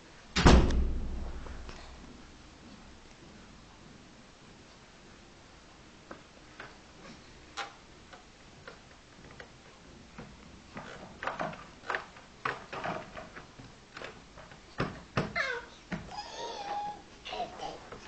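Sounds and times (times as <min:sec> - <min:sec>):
clicks and knocks on wooden furniture: 0:07.6 - 0:16.9.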